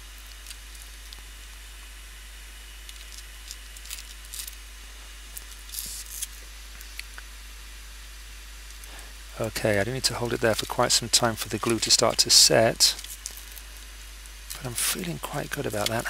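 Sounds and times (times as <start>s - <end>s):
steady low hiss: 0.0s - 16.0s
gloved hands rustling: 8.7s - 16.0s.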